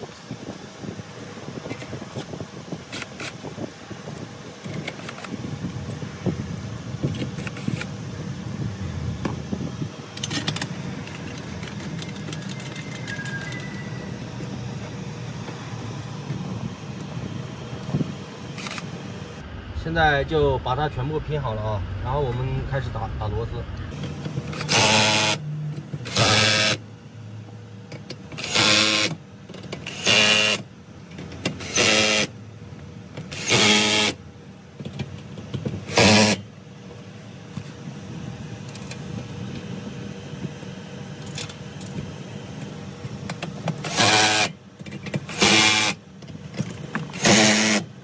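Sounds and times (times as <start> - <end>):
cordless drill whirring in bursts: 24.0 - 25.4, 26.1 - 26.8, 28.4 - 29.2, 29.8 - 30.7, 31.6 - 32.3, 33.3 - 34.2, 35.9 - 36.4, 43.8 - 44.6, 45.3 - 46.0, 47.1 - 47.9.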